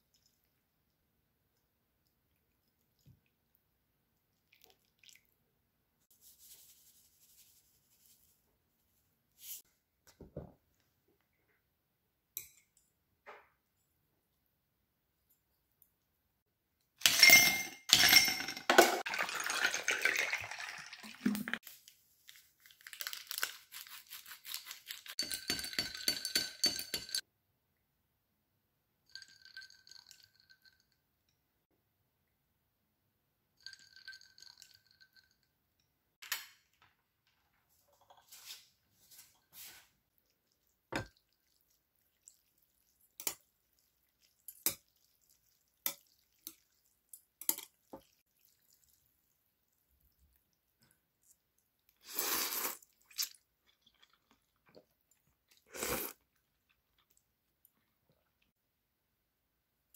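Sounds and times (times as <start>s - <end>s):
liquid poured over ice: 19.0s - 21.6s.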